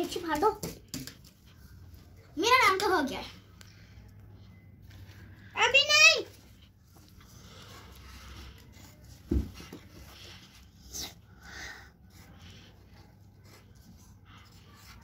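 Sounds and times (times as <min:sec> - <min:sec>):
pencil scratching on paper: 0:12.0 - 0:15.0.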